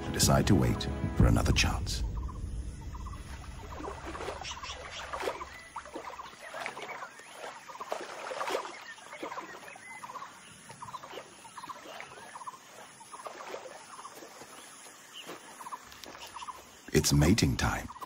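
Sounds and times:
rattling animal calls: 0:02.9 - 0:08.0
deer splashing through water: 0:03.3 - 0:16.5.

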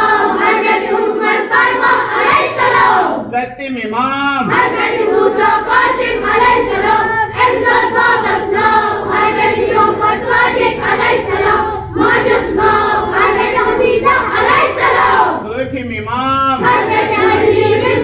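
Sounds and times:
children chanting in unison: 0:00.0 - 0:03.3, 0:04.4 - 0:15.4, 0:16.6 - 0:18.0.

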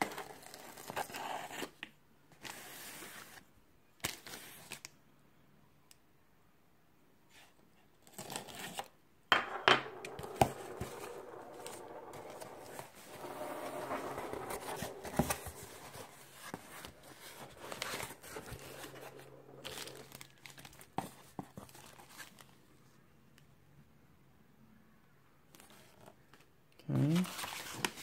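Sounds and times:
plastic packing crinkling: 0:19.6 - 0:20.9.

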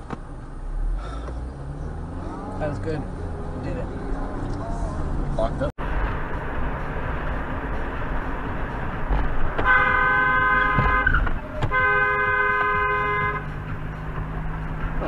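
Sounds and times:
road noise inside a car: 0:00.0 - 0:15.0
car horn blasts: 0:09.6 - 0:13.6.

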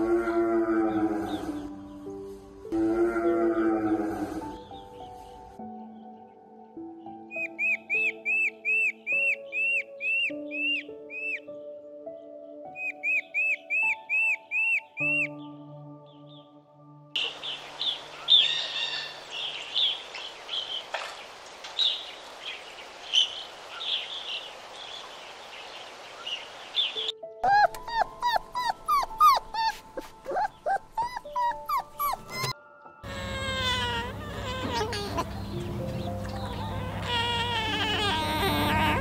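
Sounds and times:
small dog whining: 0:27.4 - 0:35.4, 0:36.6 - 0:39.0
falling cries: 0:30.4 - 0:35.8, 0:36.4 - 0:39.0.

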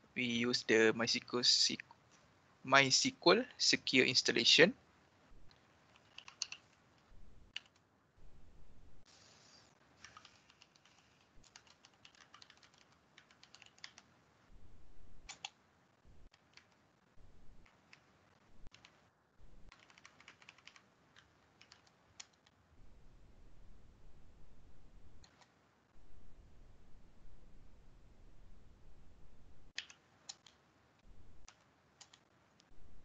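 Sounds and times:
keyboard typing: 0:05.5 - 0:07.8, 0:10.0 - 0:14.1, 0:15.2 - 0:15.6, 0:16.3 - 0:16.8, 0:17.6 - 0:19.0, 0:19.7 - 0:22.5, 0:29.8 - 0:30.6, 0:31.4 - 0:32.2.

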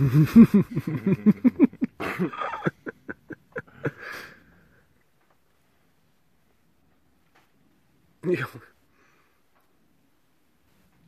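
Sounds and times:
person laughing: 0:00.0 - 0:04.4
breathy inhale: 0:03.8 - 0:04.9, 0:08.9 - 0:09.5.

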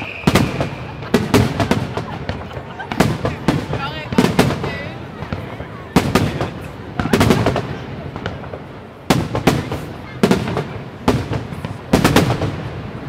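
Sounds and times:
firework shells bursting: 0:00.0 - 0:04.6.

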